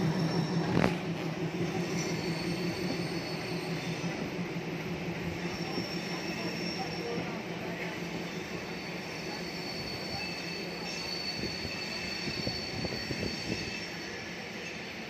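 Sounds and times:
train running gear rumble and knocks: 0:00.0 - 0:08.1
train wheels squealing on rails: 0:00.0 - 0:15.0.

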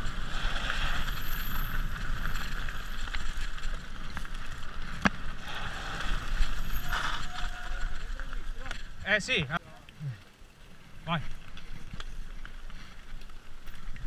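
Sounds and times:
bike tyres rolling on gravel: 0:00.0 - 0:14.0
small rattles and clicks: 0:06.0 - 0:14.0.

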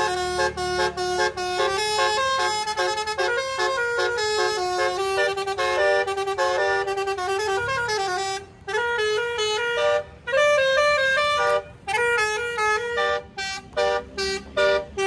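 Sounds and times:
multi-tone car horn melody: 0:00.0 - 0:15.0.

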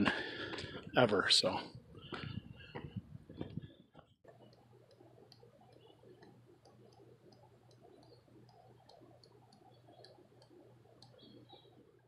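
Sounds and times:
steady low hum: 0:00.0 - 0:12.0
faint high ticks: 0:04.4 - 0:11.7.

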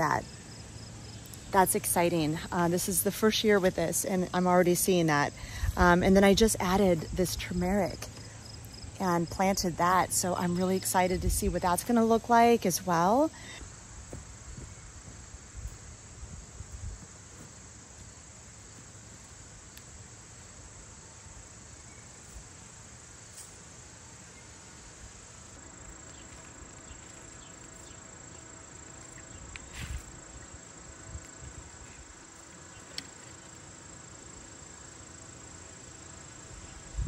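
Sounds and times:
crickets trilling: 0:00.0 - 0:37.0.

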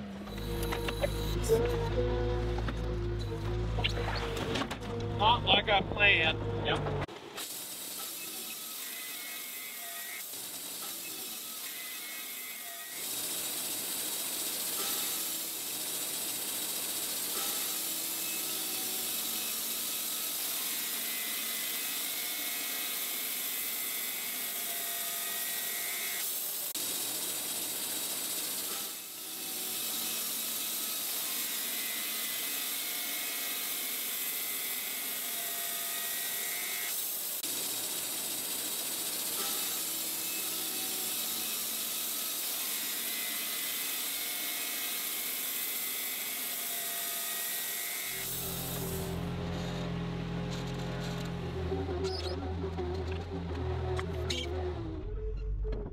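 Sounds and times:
band sawmill sawing log: 0:07.7 - 0:52.1.

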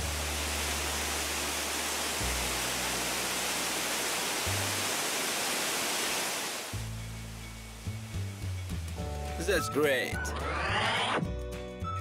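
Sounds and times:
water rushing from pipe into river: 0:00.0 - 0:06.9
background music with bass: 0:06.8 - 0:12.0.

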